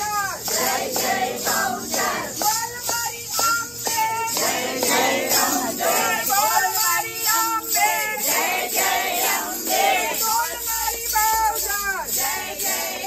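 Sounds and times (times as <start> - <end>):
steady hand clapping: 0.0 - 13.0
women singing in unison: 0.4 - 2.5, 3.3 - 6.4, 7.6 - 10.5.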